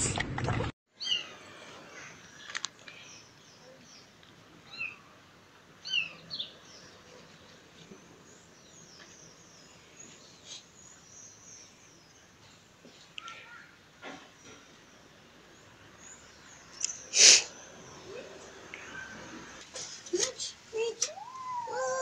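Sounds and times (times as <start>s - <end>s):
faint clicks: 13.1s - 13.4s
kitten mewing: 21.0s - 22.0s.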